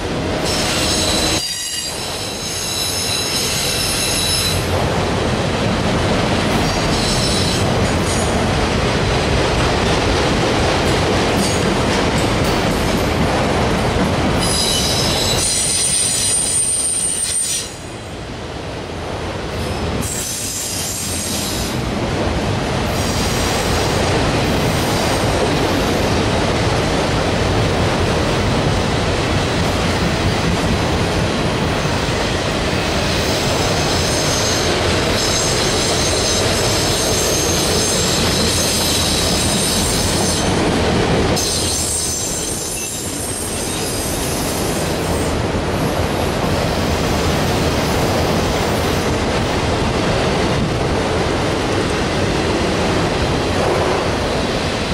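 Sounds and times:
train rumble: 0.0s - 54.9s
train wheels squealing: 0.4s - 4.7s, 6.6s - 8.4s, 14.4s - 18.1s, 20.0s - 21.8s, 33.2s - 40.6s, 41.4s - 45.4s.

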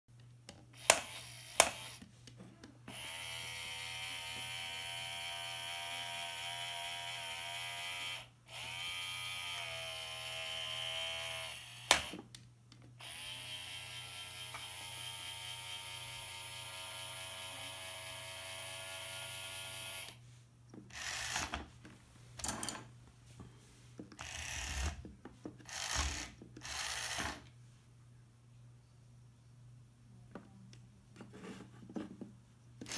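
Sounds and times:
toy gear motors whining: 0.8s - 2.0s, 2.9s - 12.2s, 13.0s - 20.2s, 20.9s - 21.6s, 24.2s - 25.0s, 25.6s - 27.5s.

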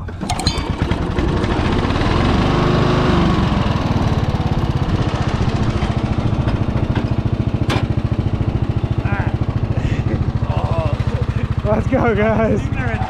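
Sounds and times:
mower engine pulsing idle: 0.0s - 13.0s.

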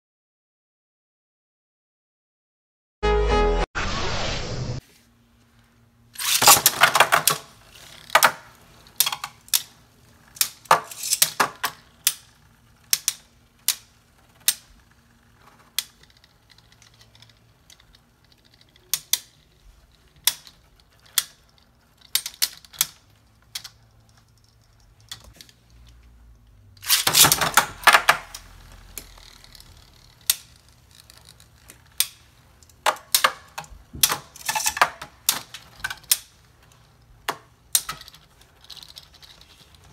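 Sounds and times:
spinning tops clashing: 6.2s - 8.2s, 9.0s - 14.7s, 26.8s - 36.4s
ripcord launcher rattle: 6.2s - 25.7s, 26.8s - 39.9s.

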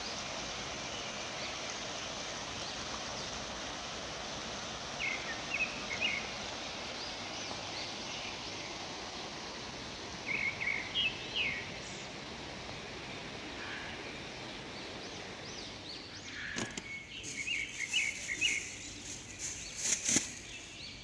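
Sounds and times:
river rushing: 0.0s - 15.9s, 17.2s - 21.0s
bird chirps: 15.4s - 21.0s.

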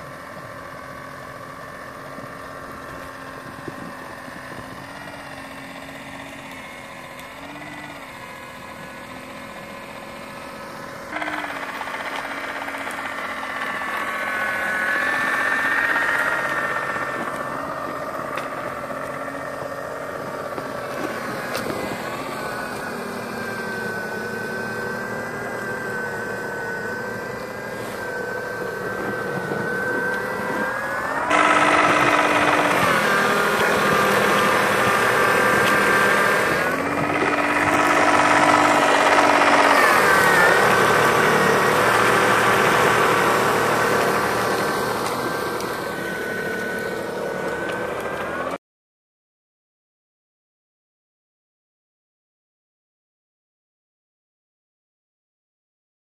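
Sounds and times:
small motor and impeller whining: 0.0s - 48.6s.

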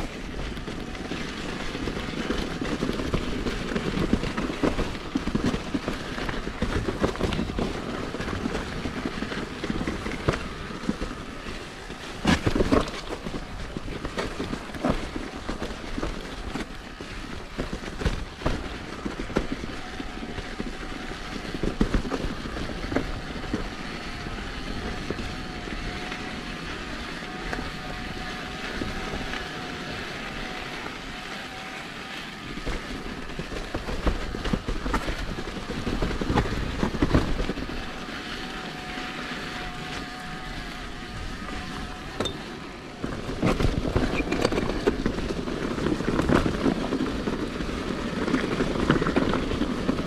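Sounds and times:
bike tyre noise on trail: 0.0s - 50.0s.

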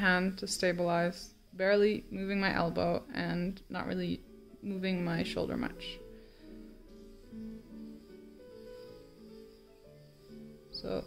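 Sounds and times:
soft instrumental music: 0.0s - 11.0s.

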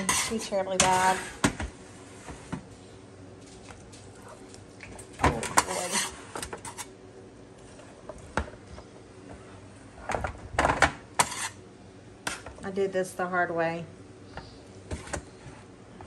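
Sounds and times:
metal tongs scraping baking sheet: 0.0s - 1.4s, 5.4s - 6.9s, 11.2s - 11.6s.

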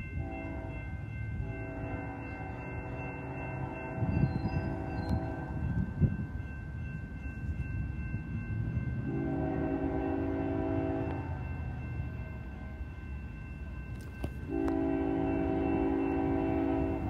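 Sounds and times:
crossing signal ringing: 0.0s - 17.0s
low rumble of train: 0.0s - 17.0s
locomotive air horn blast: 1.4s - 4.1s, 9.1s - 11.4s, 14.4s - 17.0s.

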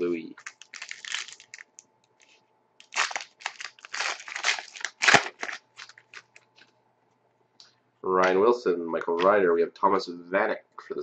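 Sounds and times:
foil wrapper tearing and crinkling: 0.4s - 1.8s, 2.8s - 6.4s.

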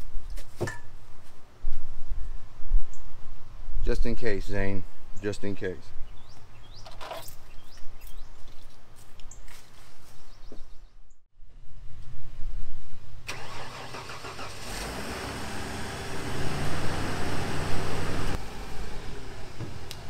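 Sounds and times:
truck engine starting and revving: 13.3s - 20.0s.

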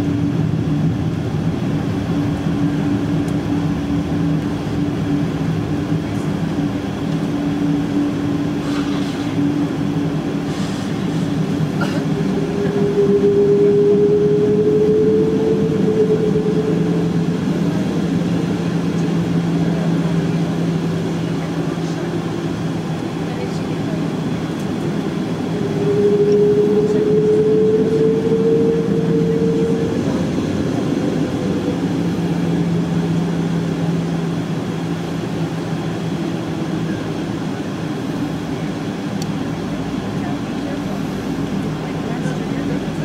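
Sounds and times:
higher hum: 0.0s - 43.0s
jet engines droning at idle: 0.0s - 43.0s.

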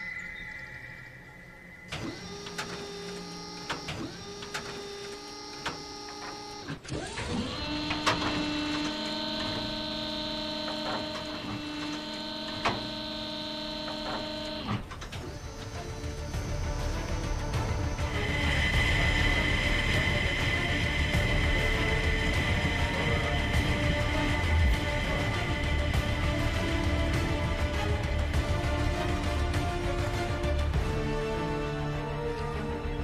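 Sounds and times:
machine whirring: 0.0s - 32.8s
machine clicks: 1.9s - 15.4s.

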